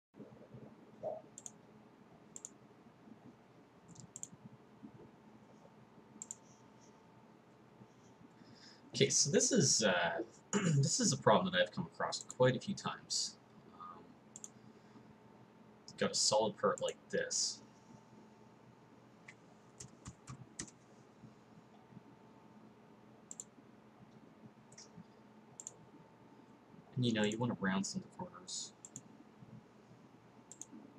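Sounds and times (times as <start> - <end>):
faint room hiss: 0.2 - 30.9
faint steady hum: 0.2 - 30.9
computer mouse clicking: 1.0 - 1.6, 2.3 - 2.6, 3.2 - 5.0, 6.2 - 6.6, 14.3 - 14.6, 19.2 - 20.8, 23.3 - 23.5, 24.1 - 26.0, 27.2 - 27.4, 28.8 - 29.1, 30.5 - 30.9.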